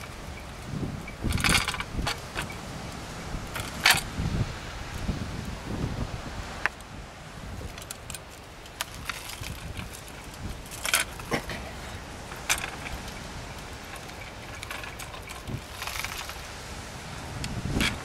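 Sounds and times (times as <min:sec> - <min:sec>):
speargun metal clicks and clacks: 0:07.7 - 0:11.3.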